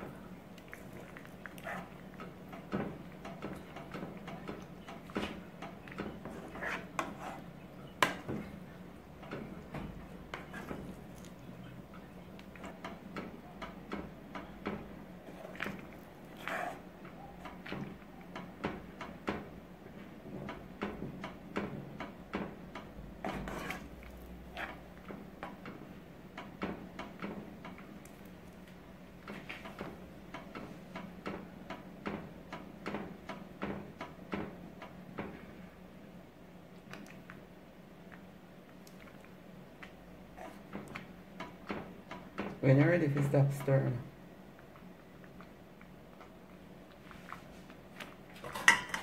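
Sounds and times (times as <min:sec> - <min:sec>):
metal spoon scraping a metal pot: 0:23.2 - 0:24.0.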